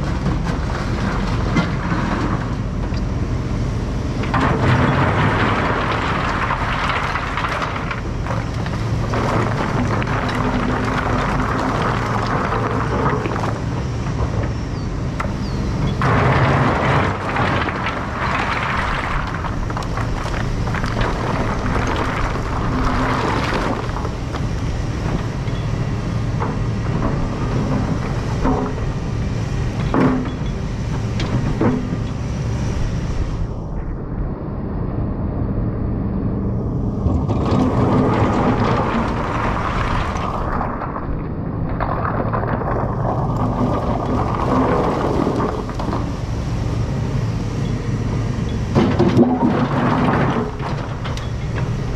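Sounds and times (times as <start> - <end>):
diesel engine running: 0.0 - 51.9
bucket scraping through stone: 16.0 - 24.4, 37.1 - 46.1.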